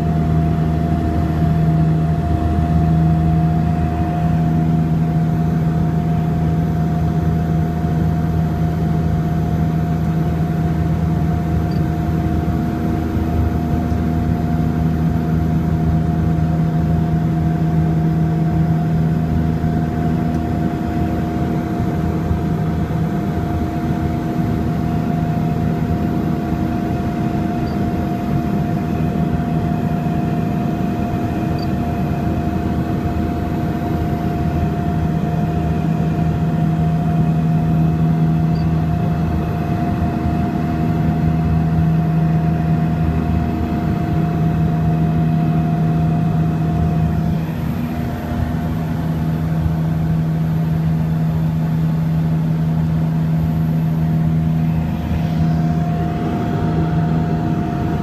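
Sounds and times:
low hum: 0:00.0 - 0:58.0
propeller aircraft engine drone: 0:00.0 - 0:58.0.

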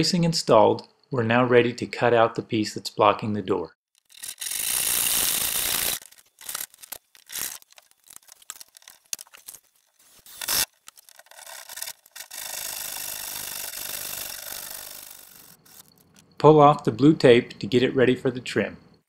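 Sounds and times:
saw cutting wood: 0:04.0 - 0:09.2, 0:10.0 - 0:15.9
wood being handled: 0:06.0 - 0:12.2.

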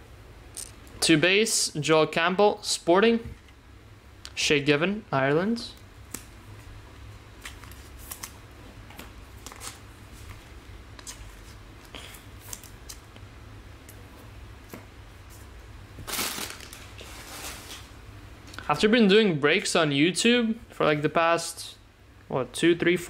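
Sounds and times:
cards clicking and rustling: 0:07.4 - 0:13.1.

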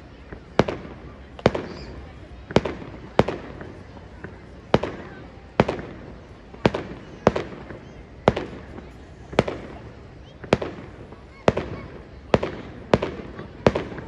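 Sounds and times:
fireworks bangs with echo: 0:00.2 - 0:14.0.

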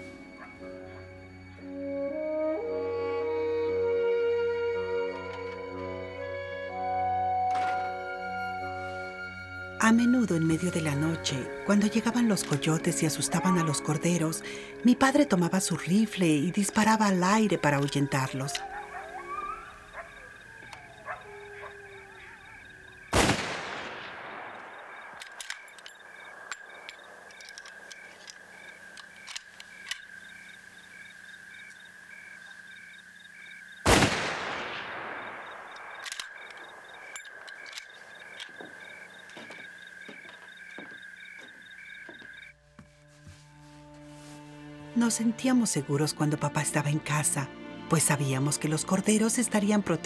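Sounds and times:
rifle shots echoing: 0:23.0 - 0:27.3, 0:33.8 - 0:38.4.

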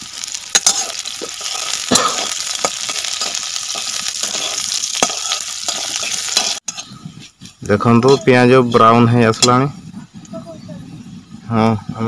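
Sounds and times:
onions sizzling in hot oil: 0:00.0 - 0:09.7
spatula scraping and clinking pan: 0:00.5 - 0:09.6.

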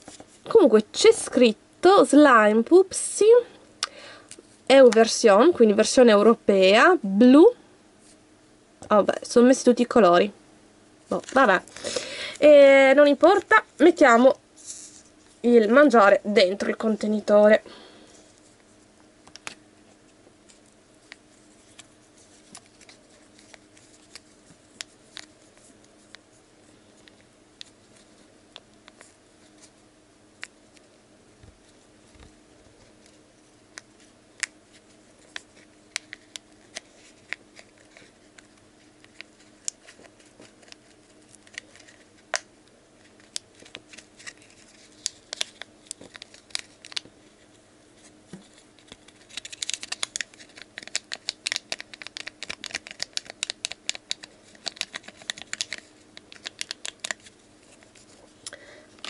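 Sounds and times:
faint steady hum: 0:00.0 - 0:59.0
foil sachet crinkling: 0:43.0 - 0:47.5, 0:48.4 - 0:58.5.

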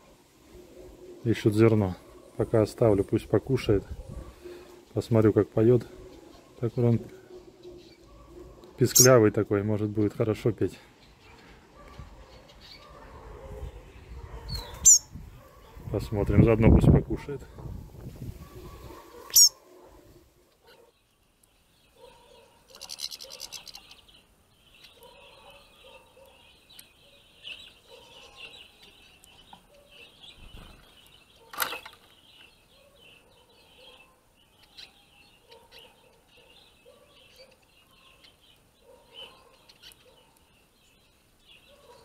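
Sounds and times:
finches twittering and chirping: 0:04.2 - 0:09.3, 0:14.5 - 0:16.6, 0:18.6 - 0:19.6, 0:21.4 - 0:42.0.

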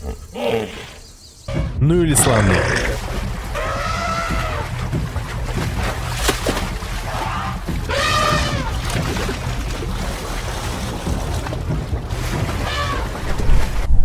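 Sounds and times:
heavy splashing in water: 0:02.3 - 0:14.0
elephant trumpeting: 0:03.4 - 0:05.0, 0:07.0 - 0:09.1, 0:12.5 - 0:13.2.

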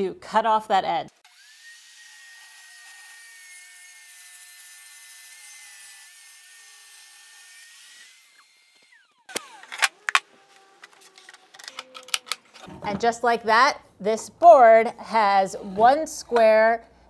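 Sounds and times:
table saw ripping board: 0:06.2 - 0:12.7.

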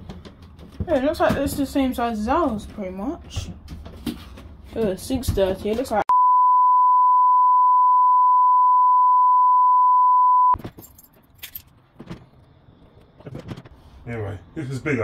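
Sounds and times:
censor bleep: 0:06.1 - 0:10.6.

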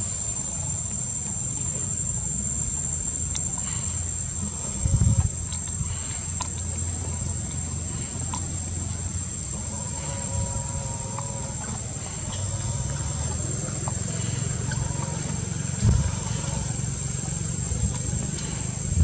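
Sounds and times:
insects droning: 0:00.0 - 0:19.0
low rumble: 0:03.8 - 0:19.0.

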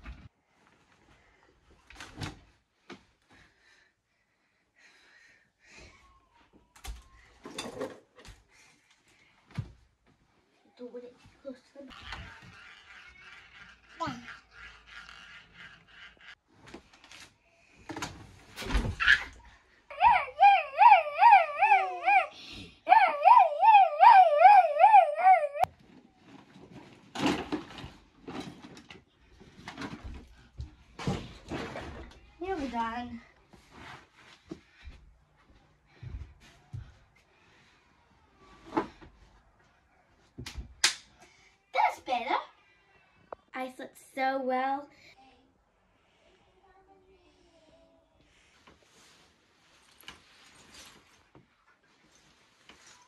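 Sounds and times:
objects knocking and clattering: 0:07.4 - 0:08.4, 0:26.4 - 0:32.2
rustling: 0:48.4 - 0:53.0.

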